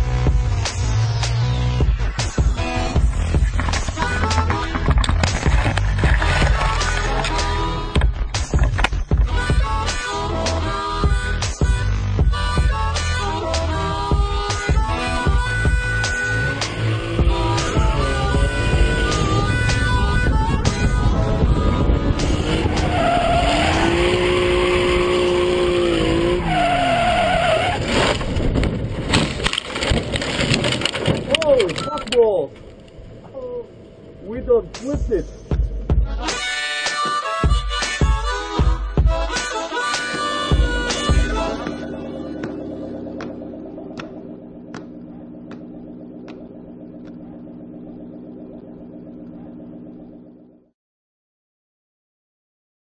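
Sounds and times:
car engine revving: 0.0 - 28.2, 39.1 - 50.7
tyres squealing: 26.3 - 28.2
car engine idling: 38.2 - 50.7.

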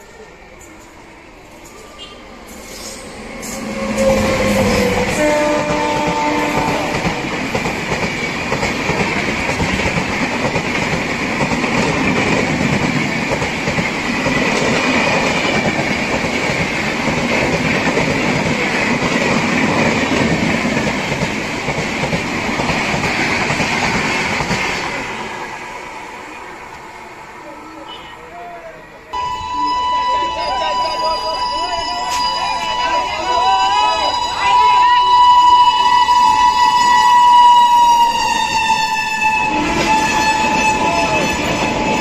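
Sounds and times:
train coaches rumbling past: 0.0 - 42.0
locomotive horn blasts: 3.7 - 7.1, 39.2 - 41.5.

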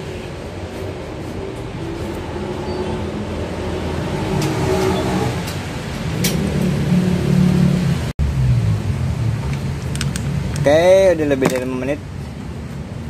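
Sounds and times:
vehicle engine revving: 1.4 - 9.8.

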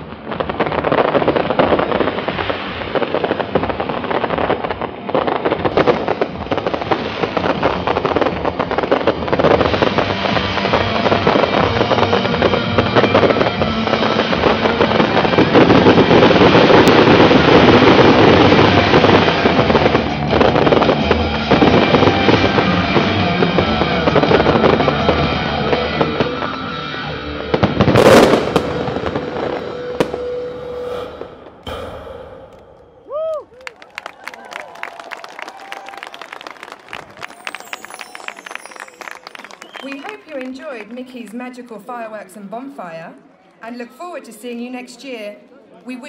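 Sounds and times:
fireworks bursting: 0.0 - 23.0, 27.5 - 35.0, 35.6 - 41.6
crackling firework sparks: 0.0 - 31.8, 32.6 - 41.0.

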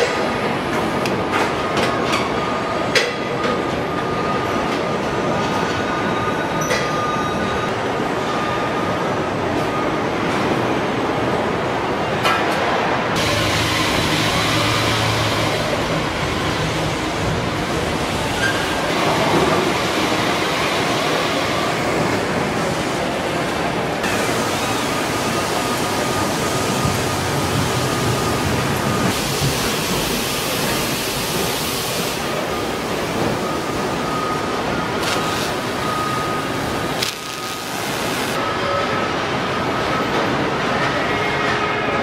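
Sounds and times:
machinery and air noise: 0.0 - 42.0.

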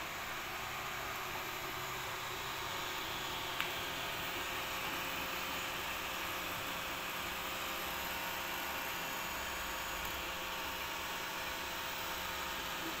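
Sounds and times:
cooling fans whirring: 0.0 - 13.0.

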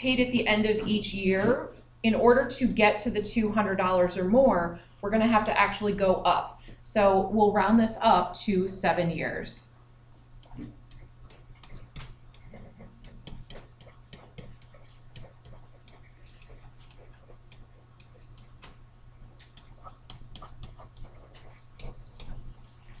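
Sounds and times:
low electrical hum: 0.0 - 23.0
stylus tapping on tablet: 10.4 - 18.8, 19.4 - 22.6.

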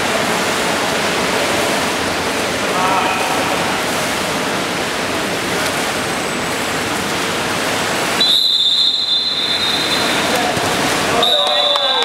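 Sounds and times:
water splashing in a pool: 0.0 - 12.0
shrill whistle blast: 8.2 - 10.3, 11.2 - 12.0.

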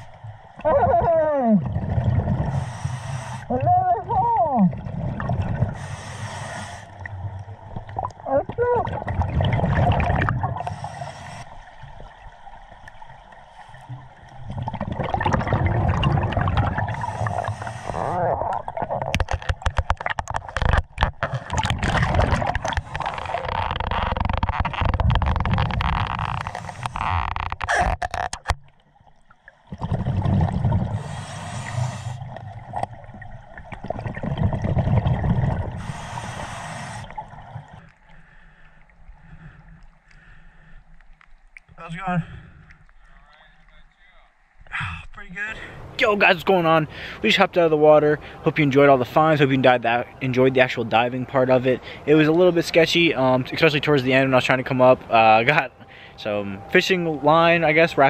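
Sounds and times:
underwater river current rush: 0.0 - 58.0
gurgling bubble bursts: 0.6 - 2.5, 3.5 - 5.8, 7.7 - 10.7, 14.4 - 19.3, 21.5 - 26.0, 29.7 - 31.1, 32.2 - 35.8
clicks and knocks on camera: 18.8 - 28.7.

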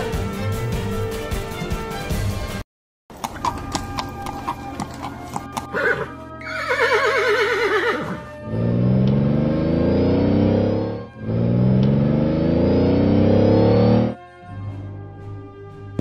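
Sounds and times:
background music: 0.0 - 16.0
horse neighing: 3.2 - 8.8
car engine revving: 8.4 - 14.2.

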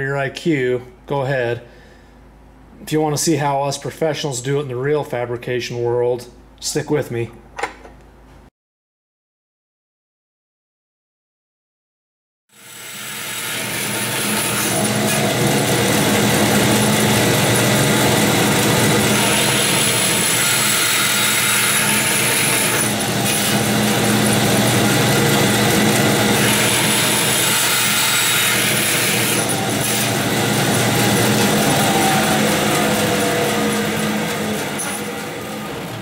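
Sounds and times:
bandsaw motor hum: 12.6 - 36.0.

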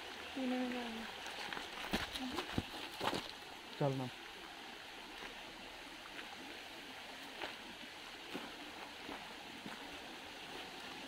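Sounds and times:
stream running: 0.0 - 11.0
footsteps on stony ground: 1.2 - 3.4, 7.2 - 11.0.

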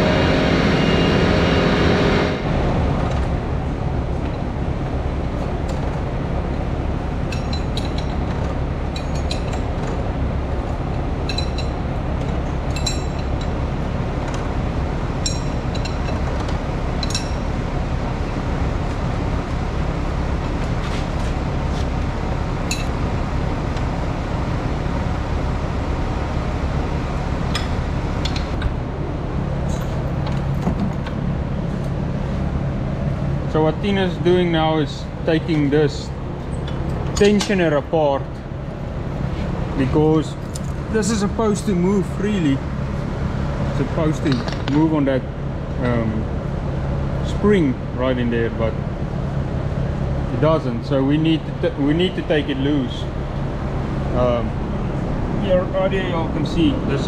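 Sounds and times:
low hum: 0.0 - 57.0
wrench clinking on metal chains: 12.7 - 13.5.

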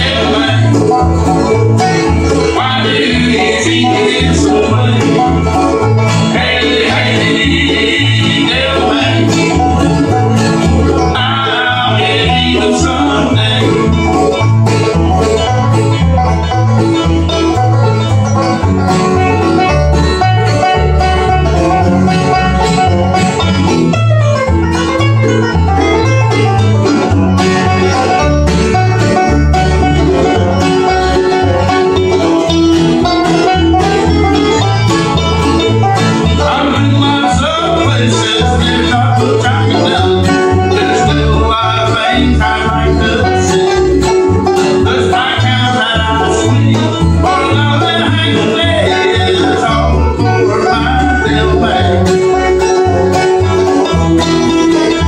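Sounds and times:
acoustic guitar: 0.0 - 55.0
banjo: 0.0 - 55.0
mandolin: 0.0 - 55.0
upright bass plucking: 0.0 - 55.0.

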